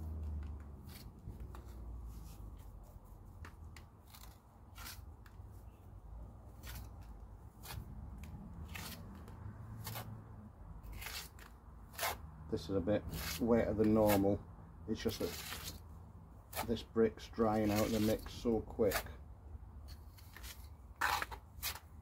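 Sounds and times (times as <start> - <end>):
trowel scraping mortar: 4.0 - 5.2, 6.6 - 7.9, 10.9 - 12.2, 13.0 - 14.4, 15.0 - 15.8, 16.5 - 19.2, 19.9 - 22.0.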